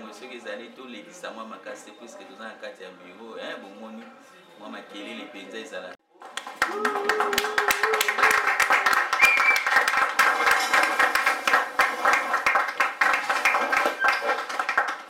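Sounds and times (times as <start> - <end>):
people clapping: 6.1 - 15.0.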